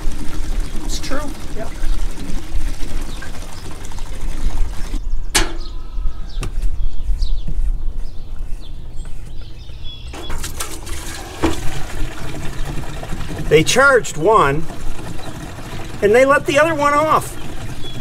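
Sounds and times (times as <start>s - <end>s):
fluid pouring into metal funnel: 0.0s - 5.0s, 10.2s - 18.0s.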